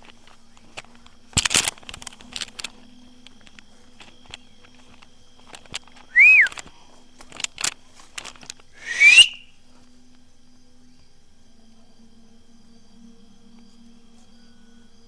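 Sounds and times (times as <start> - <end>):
short whistles: 6.1 - 6.6, 8.8 - 9.6.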